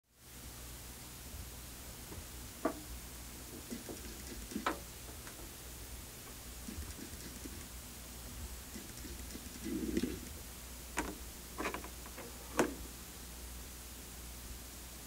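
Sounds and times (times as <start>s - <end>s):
turntable low hum: 1.0s - 13.3s
sharp clicks: 3.7s - 5.4s, 8.8s - 10.4s.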